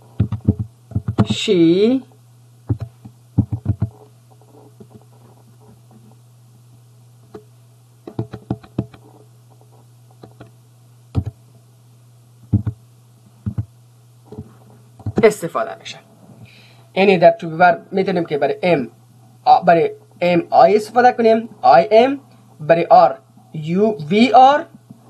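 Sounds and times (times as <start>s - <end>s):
steady low hum: 0.0s - 25.0s
keyboard key clicks: 2.7s - 4.0s, 8.1s - 9.0s, 11.2s - 11.4s.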